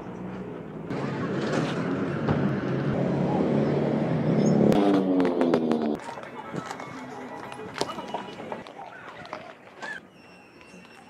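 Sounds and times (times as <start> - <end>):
vehicle engine running nearby: 0.0 - 8.6
street traffic: 0.0 - 11.0.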